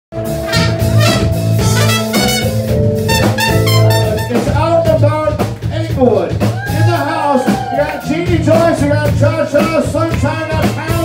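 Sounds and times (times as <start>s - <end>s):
drum kit: 0.1s - 11.0s
trumpet notes: 0.2s - 5.0s.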